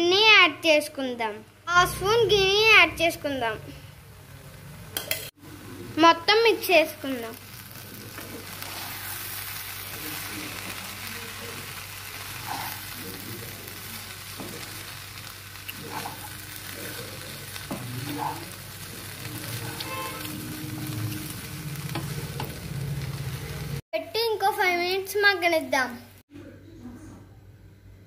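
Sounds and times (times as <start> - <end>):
steady sizzle: 0.0 - 26.2
spatula scraping a pan: 8.1 - 9.5.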